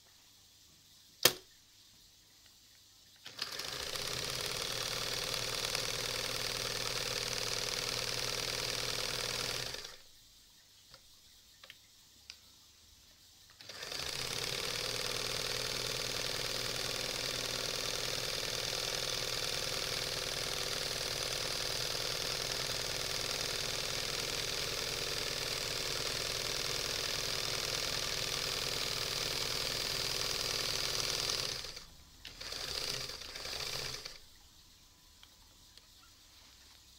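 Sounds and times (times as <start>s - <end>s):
sewing machine running: 3.2s - 10.0s, 13.6s - 34.2s
faint clicks: 10.9s - 12.5s, 35.2s - 36.1s.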